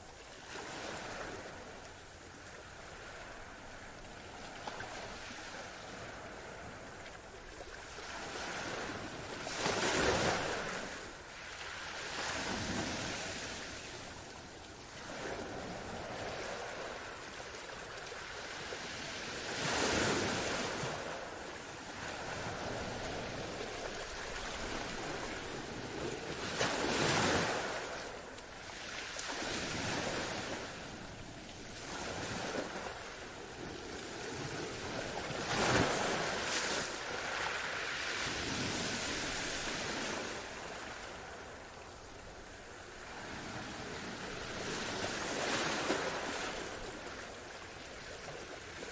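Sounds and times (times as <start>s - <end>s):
waves washing: 0.0s - 48.9s
waves breaking: 2.4s - 48.9s.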